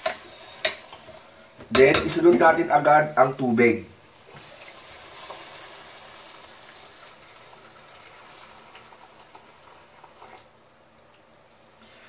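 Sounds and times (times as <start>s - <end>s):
chicken frying: 0.0s - 11.8s
water poured into hot pan hissing: 4.0s - 10.5s.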